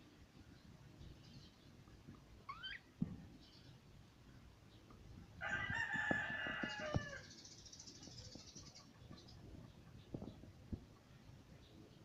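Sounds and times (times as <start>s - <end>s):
budgerigar chirp: 2.5s - 2.9s
rooster crowing: 5.4s - 7.3s.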